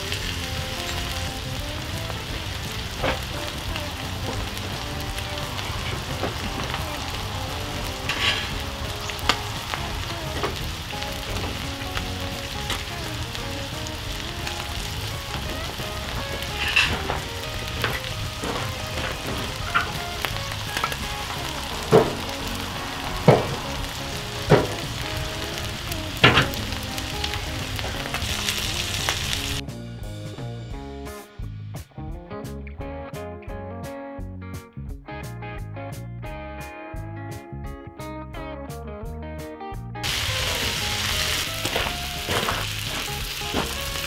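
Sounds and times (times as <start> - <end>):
patties sizzling in frying pan: 0.0 - 29.6, 40.0 - 44.0
sharp pops and knocks: 24.4 - 25.1.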